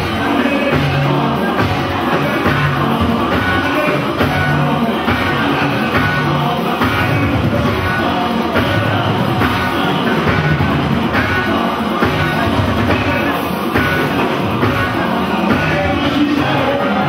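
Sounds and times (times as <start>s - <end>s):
drum kit steady beat: 0.0s - 17.0s
live band music: 0.0s - 17.0s
voices singing: 0.0s - 17.0s.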